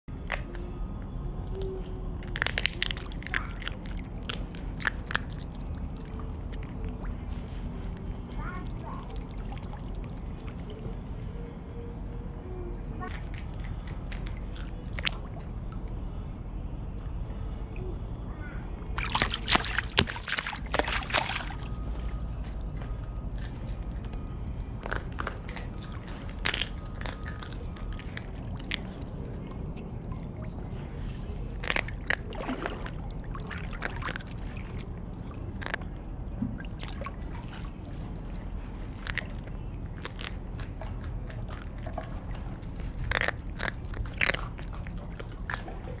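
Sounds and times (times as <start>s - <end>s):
crab shell cracking: 2.2s - 5.6s, 31.6s - 32.3s, 35.5s - 35.8s, 42.8s - 45.6s.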